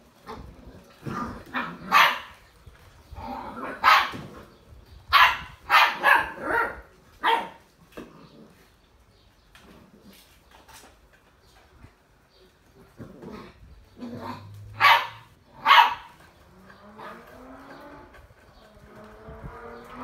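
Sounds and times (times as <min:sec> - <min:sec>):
puppies barking: 0:00.3 - 0:02.5, 0:03.2 - 0:04.4, 0:05.1 - 0:07.7, 0:13.9 - 0:19.0.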